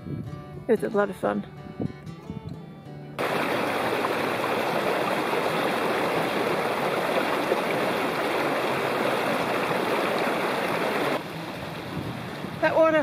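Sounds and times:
stream splashing over stones: 3.2 - 13.0.

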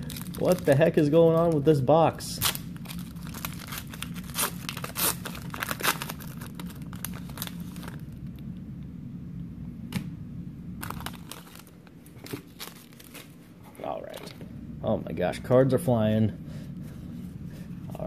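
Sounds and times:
foil wrapper tearing and crinkling: 0.0 - 1.7, 2.3 - 8.1, 10.8 - 13.4.

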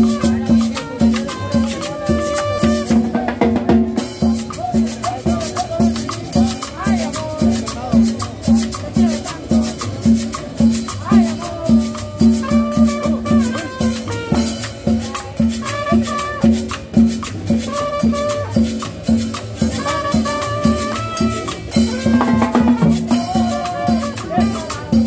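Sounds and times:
trumpet melody: 0.0 - 3.4, 11.1 - 25.0
drums and shaken percussion: 0.0 - 25.0.

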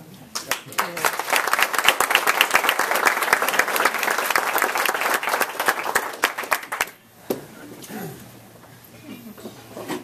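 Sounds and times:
audience applauding: 0.4 - 7.0.

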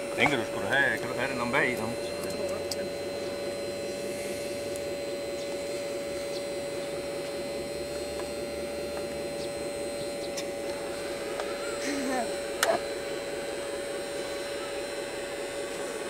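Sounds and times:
electric motor hum: 0.0 - 16.0.

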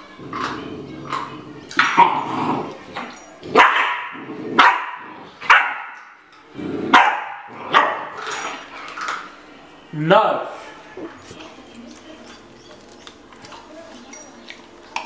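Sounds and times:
puppy barking: 3.5 - 6.1, 6.9 - 8.2.

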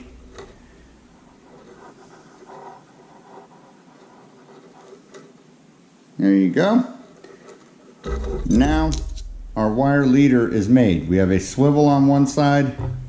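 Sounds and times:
fingers scratching wire: 0.0 - 5.4.

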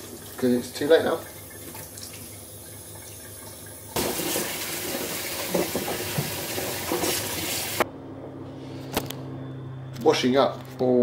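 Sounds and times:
tap water running into sink: 0.0 - 7.8.

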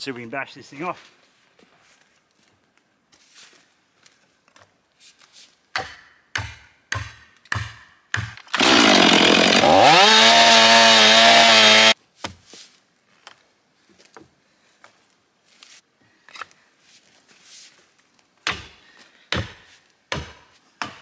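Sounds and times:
axe striking wedge: 5.8 - 8.4, 18.4 - 21.0
chainsaw running: 8.5 - 12.0.

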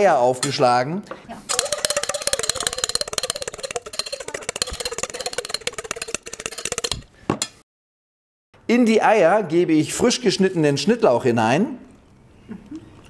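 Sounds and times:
fork beating eggs in metal bowl: 1.5 - 7.6.

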